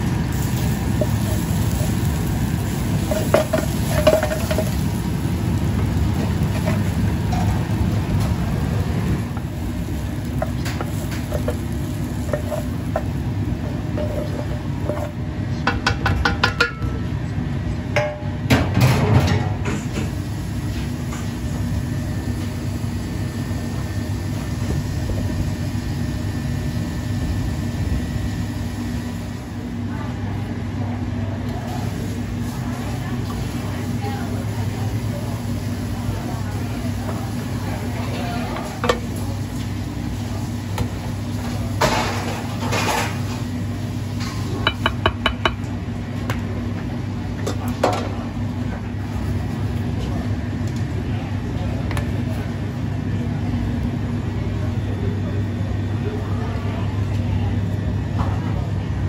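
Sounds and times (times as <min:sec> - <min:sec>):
light sizzle: 0:00.0 - 0:15.2, 0:31.5 - 0:44.8
gas range rumble: 0:00.0 - 0:59.0.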